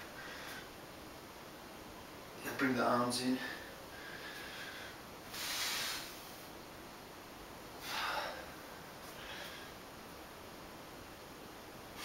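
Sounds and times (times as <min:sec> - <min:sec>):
man breathing loudly: 0:03.4 - 0:06.2, 0:07.8 - 0:09.8.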